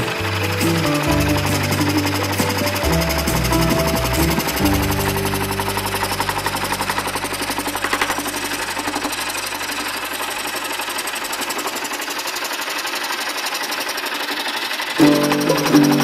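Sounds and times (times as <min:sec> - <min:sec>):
scroll saw cutting wood: 0:00.0 - 0:16.0.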